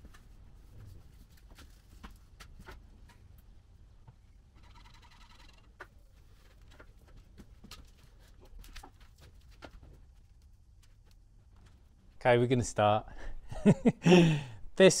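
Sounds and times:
rapid chattering squeak: 0:04.6 - 0:05.7.

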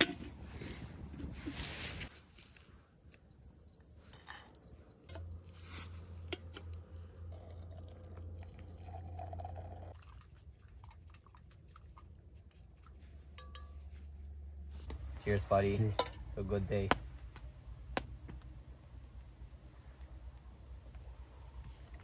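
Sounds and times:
water pouring into pot: 0:07.2 - 0:11.5
metal cookware clinking: 0:13.3 - 0:13.9, 0:15.9 - 0:16.3.

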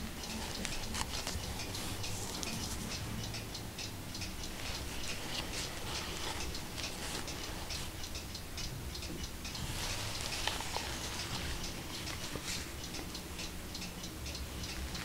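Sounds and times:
gloves rubbing book binding: 0:00.4 - 0:02.9, 0:04.5 - 0:07.9, 0:09.6 - 0:12.7.

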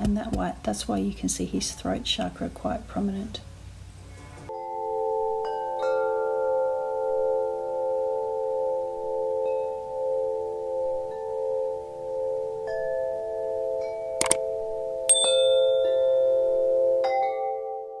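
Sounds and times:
bell-like chime tones: 0:04.5 - 0:18.0.

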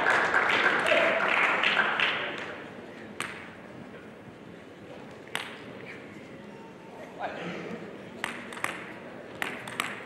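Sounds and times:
table tennis ball clicks: 0:08.2 - 0:10.0.

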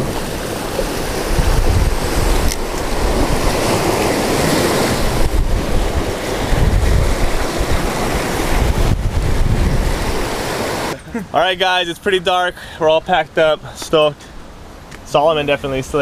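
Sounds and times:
wind buffeting microphone: 0:00.0 - 0:11.0
surf breaking over rocks: 0:00.0 - 0:16.0.

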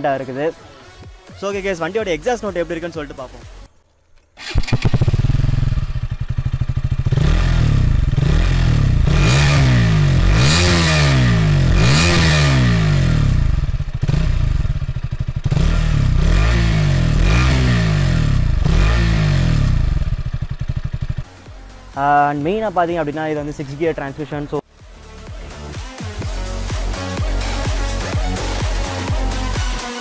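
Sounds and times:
motorcycle engine revving: 0:04.3 - 0:23.6, 0:25.8 - 0:30.0.

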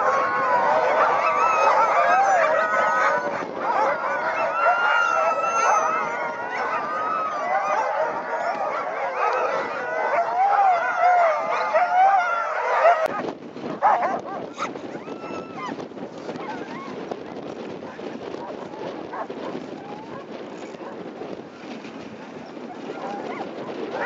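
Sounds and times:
huskies yelping and howling: 0:00.0 - 0:13.2, 0:13.8 - 0:17.1, 0:22.4 - 0:24.0.

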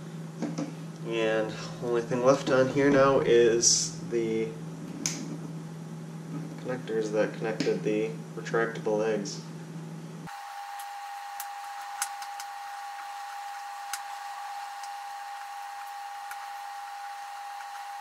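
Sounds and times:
high-pitched whine: 0:01.1 - 0:05.4.

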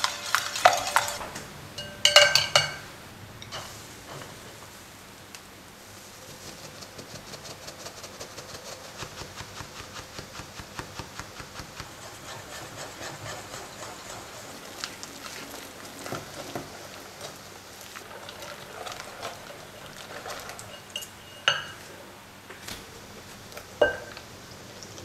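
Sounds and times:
flour sifted through sieve: 0:00.0 - 0:01.2, 0:05.7 - 0:22.0
whisk scraping in glass bowl: 0:06.2 - 0:21.9.

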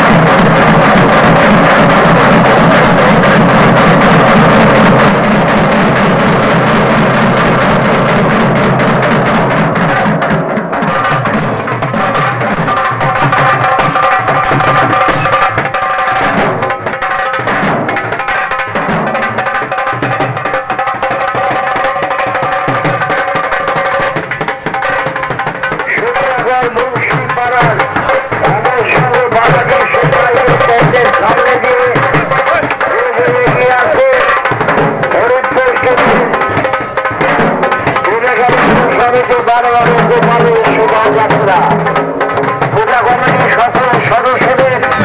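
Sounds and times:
kettle drums rolling: 0:00.0 - 0:31.0
barrel drum beating: 0:00.0 - 0:45.0.

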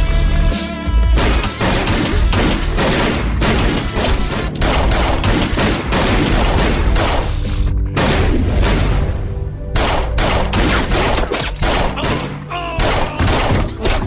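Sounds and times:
dramatic background score: 0:01.0 - 0:14.0
gunfire bursts: 0:01.2 - 0:07.4, 0:09.7 - 0:13.9.

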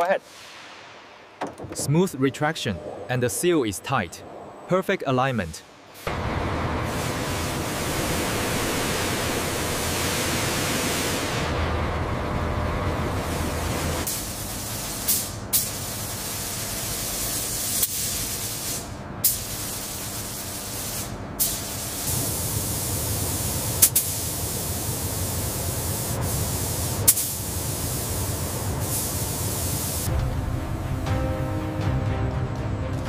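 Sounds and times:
paint spray gun hissing: 0:21.6 - 0:30.1.

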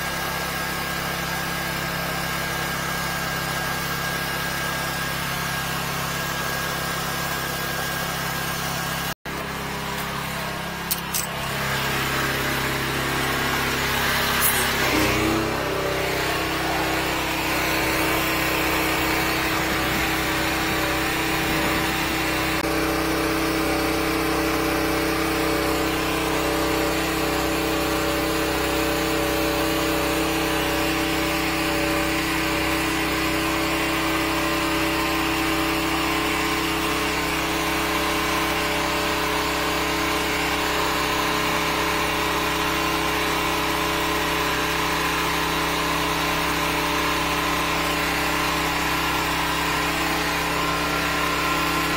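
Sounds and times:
sewer jetter engine running: 0:00.0 - 0:51.9.

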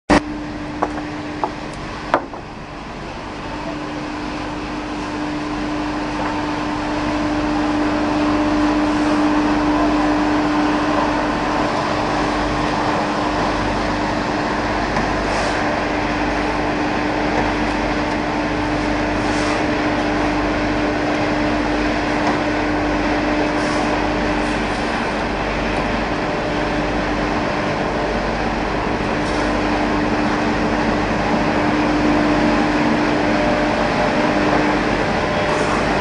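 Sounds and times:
machinery humming: 0:00.1 - 0:36.0
sharp knocks: 0:00.8 - 0:02.5.

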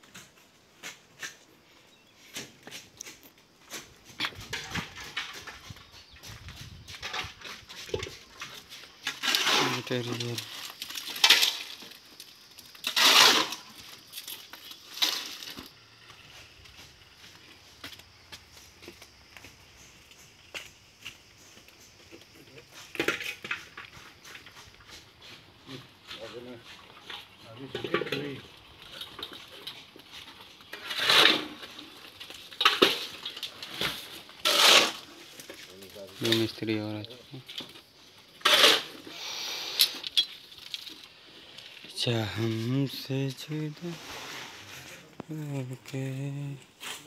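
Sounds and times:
shovel scraping wet concrete: 0:07.2 - 0:12.0, 0:12.8 - 0:15.6, 0:30.7 - 0:32.0, 0:32.6 - 0:36.4, 0:38.4 - 0:40.1, 0:46.8 - 0:47.0.

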